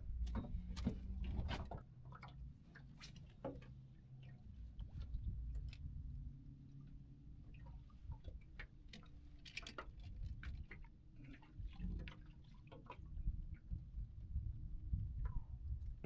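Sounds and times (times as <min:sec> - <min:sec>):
wind rumble on microphone: 0:00.0 - 0:01.8, 0:04.4 - 0:08.6, 0:09.9 - 0:16.0.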